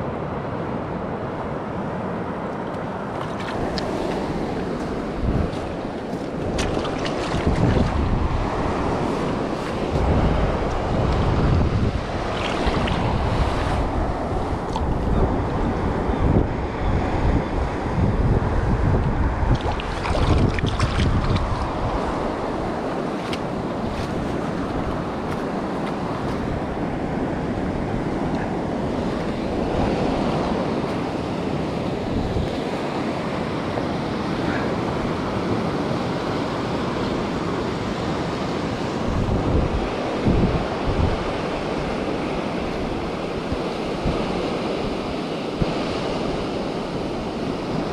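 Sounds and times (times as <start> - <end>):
surf washing over rocks: 0.0 - 47.9
wind buffeting microphone: 3.1 - 47.9.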